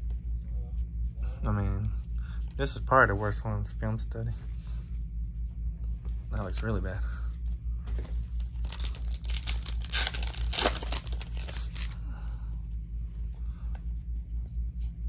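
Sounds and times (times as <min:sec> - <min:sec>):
plastic foil wrapper tearing: 0:08.6 - 0:12.0.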